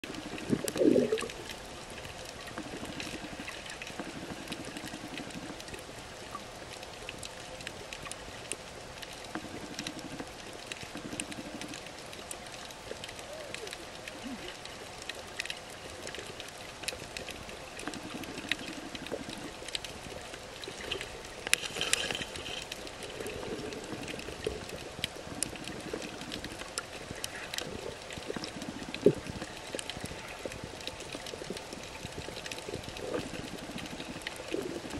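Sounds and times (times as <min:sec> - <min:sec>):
bubbling rush: 0:00.0 - 0:01.7, 0:17.4 - 0:34.9
small clicks and crackles: 0:00.0 - 0:34.9
underwater watery wash: 0:00.0 - 0:34.9.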